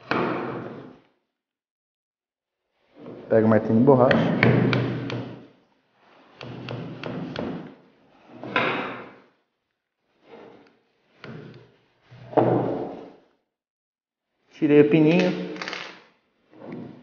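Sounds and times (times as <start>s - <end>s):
knocks and thuds on table: 0.0s - 0.8s, 4.1s - 5.4s, 6.4s - 7.7s, 8.5s - 9.2s, 12.3s - 13.0s.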